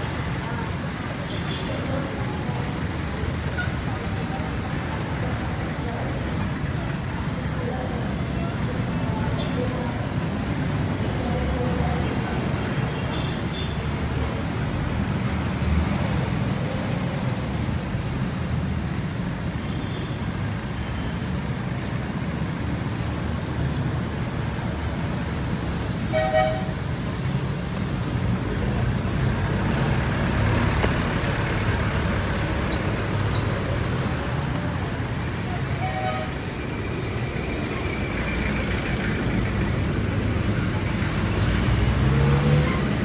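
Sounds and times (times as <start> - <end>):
traffic engines rumbling: 0.0 - 43.0
car horn toot: 26.0 - 26.8.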